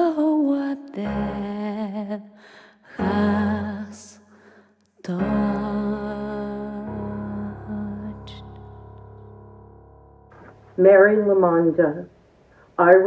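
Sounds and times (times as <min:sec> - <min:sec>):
person singing sad melody: 0:00.0 - 0:08.9.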